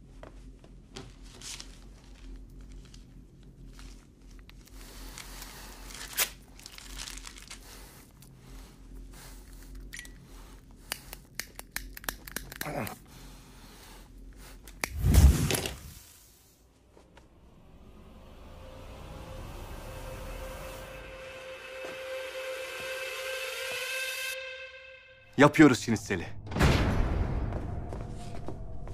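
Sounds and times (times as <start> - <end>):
wrapper crinkling and tearing: 3.6 - 8.3.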